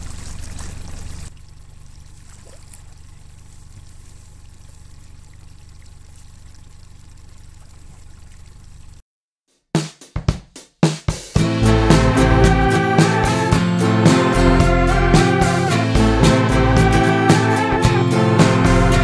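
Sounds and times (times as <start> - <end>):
water lapping beside boat: 0.0 - 9.0.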